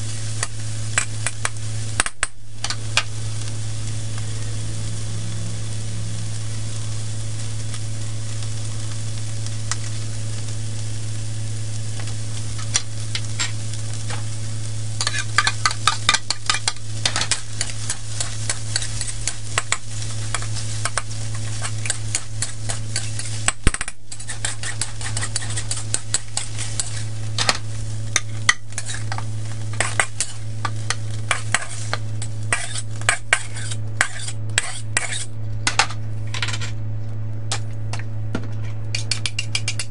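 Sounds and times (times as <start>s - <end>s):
rice sizzling in wok: 0.0s - 35.4s
steady low hum: 0.0s - 39.9s
spatula scraping wok: 14.9s - 35.4s.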